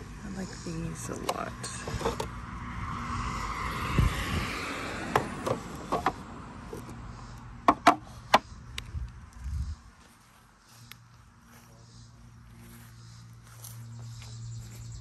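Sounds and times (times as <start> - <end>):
wooden trays knocking together: 7.7 - 8.4.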